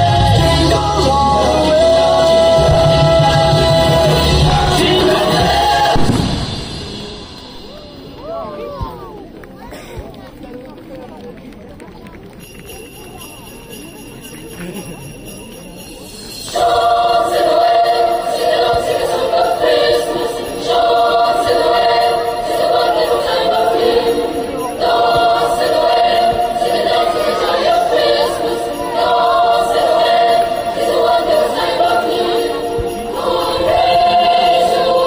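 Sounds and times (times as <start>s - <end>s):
choir singing: 0.0s - 7.7s, 16.4s - 35.0s
christmas carol singing: 0.0s - 7.8s, 12.5s - 35.0s.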